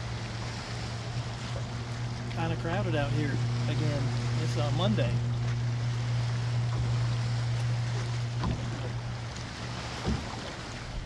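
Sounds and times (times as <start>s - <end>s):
boat motor humming: 0.0s - 11.0s
water noise: 0.0s - 11.0s
wind: 0.0s - 11.0s
faint knocks: 7.9s - 9.0s.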